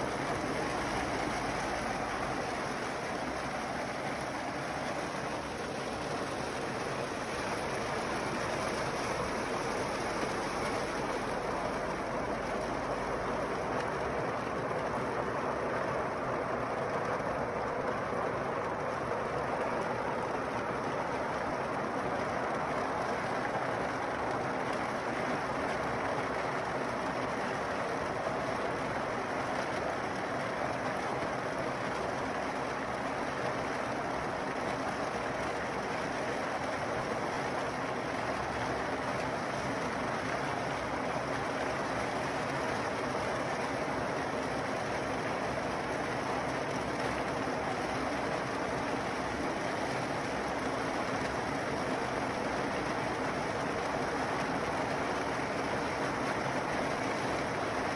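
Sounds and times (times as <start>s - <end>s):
water spraying: 0.0s - 14.7s.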